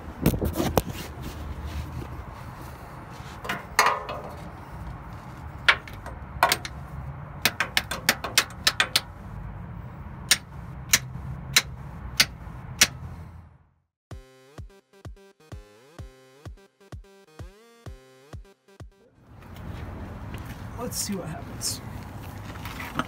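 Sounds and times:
hammer tapping on metal: 7.4 - 9.1, 10.3 - 13.0.

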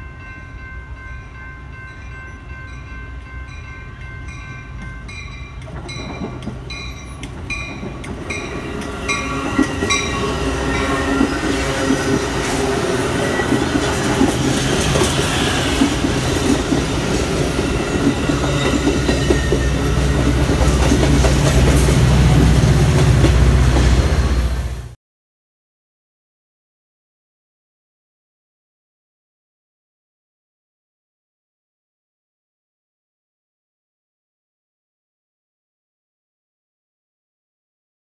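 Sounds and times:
level-crossing bell ringing: 0.0 - 11.8
diesel locomotive engine rumble: 0.1 - 25.0
train wheels clattering on rails: 5.6 - 24.2.

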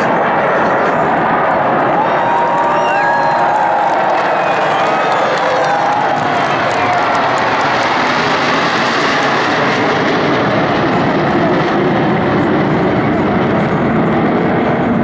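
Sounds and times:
fighter jets flying past: 0.0 - 15.0.

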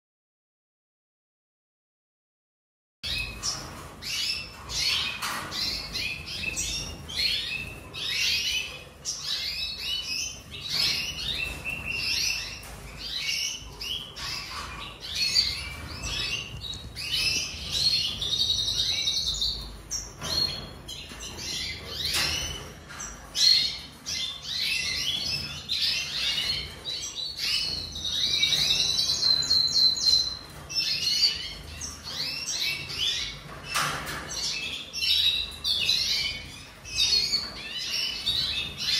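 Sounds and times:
bird singing twittering song: 3.0 - 38.9.

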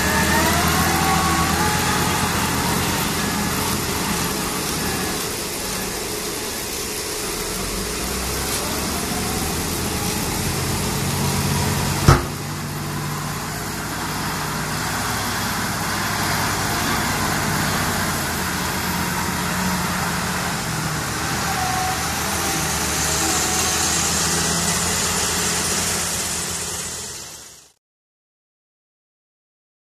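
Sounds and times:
diesel engine running: 0.0 - 27.8
sharp bang: 12.0 - 12.6.

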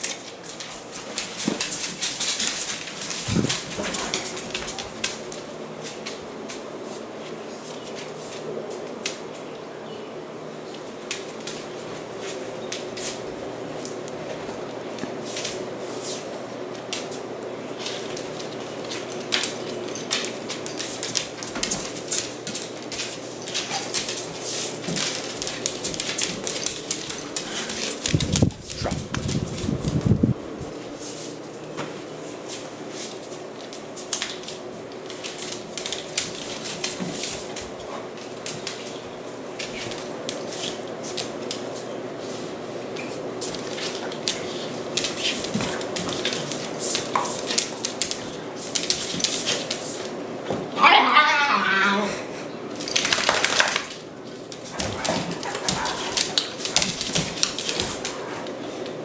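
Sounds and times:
claws clicking on wood floor: 0.0 - 6.7, 10.7 - 30.1, 33.1 - 41.9, 42.9 - 50.2, 52.8 - 59.0.

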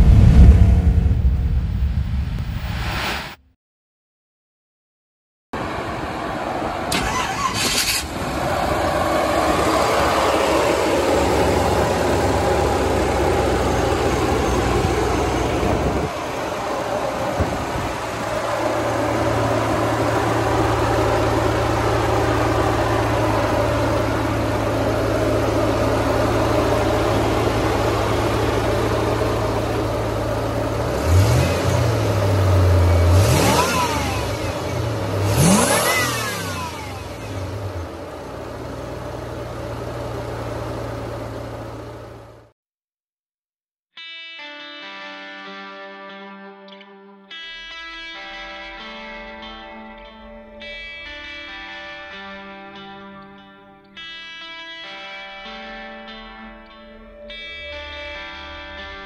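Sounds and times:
car engine idling and revving: 5.6 - 42.5.

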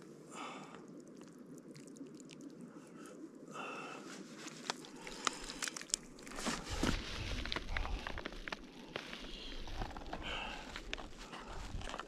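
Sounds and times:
water dripping: 0.4 - 3.2.

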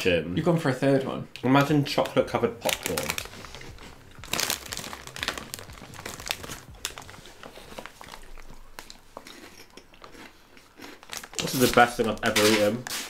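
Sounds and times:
plastic snack bag crinkling: 2.0 - 13.0
crunching snacks: 2.6 - 13.0.

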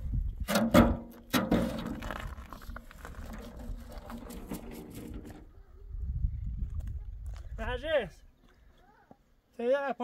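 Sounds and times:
metal wheelbarrow clanking on rock: 0.4 - 5.4.

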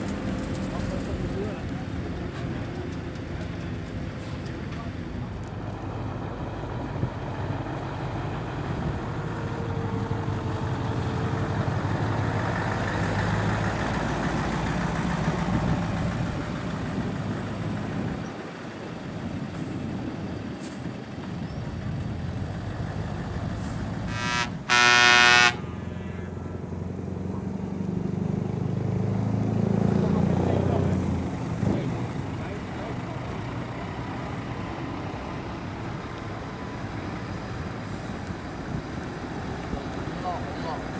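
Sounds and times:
heavy truck engines passing: 0.0 - 40.9
truck air horn blast: 24.1 - 26.5.

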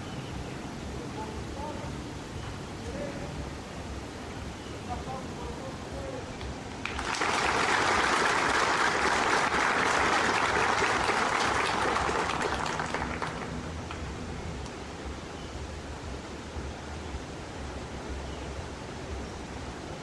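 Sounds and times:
crowd applauding: 6.7 - 14.7.

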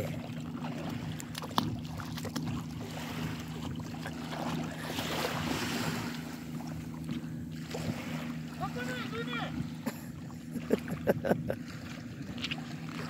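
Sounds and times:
seawater sloshing and splashing: 0.0 - 13.0
steady low hum: 0.0 - 13.0.

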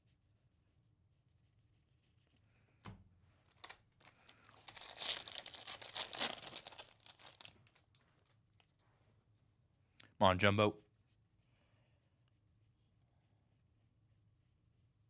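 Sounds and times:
foil wrapper tearing and crinkling: 3.5 - 8.0.

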